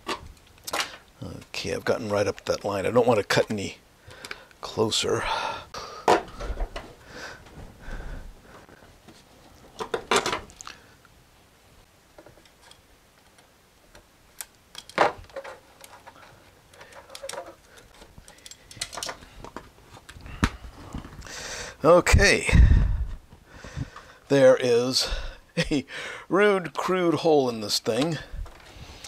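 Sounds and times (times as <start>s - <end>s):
plastic case and tools clicking: 14.4s - 21.2s.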